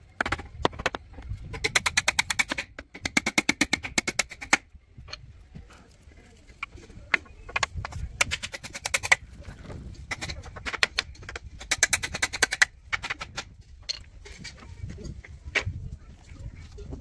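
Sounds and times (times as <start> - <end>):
hammer driving nails into wood: 1.6 - 4.6, 7.5 - 9.2, 10.1 - 13.5.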